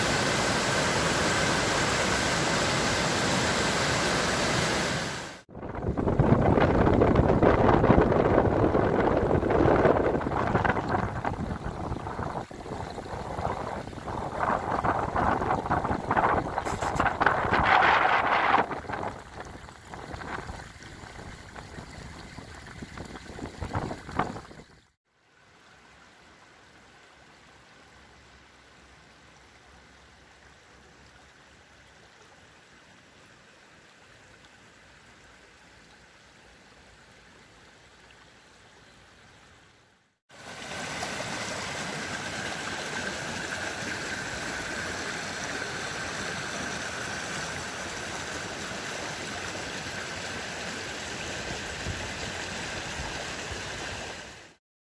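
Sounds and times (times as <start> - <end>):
shallow water hissing over meadow: 0.0 - 5.5, 7.4 - 24.6, 40.3 - 54.6
water rushing over a bank: 0.0 - 28.2, 40.3 - 54.6.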